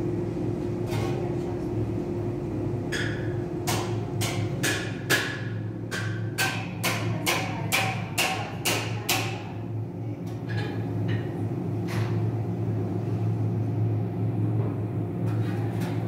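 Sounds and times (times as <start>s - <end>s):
low machine hum: 0.0s - 16.0s
hammer striking anvil: 3.0s - 9.4s.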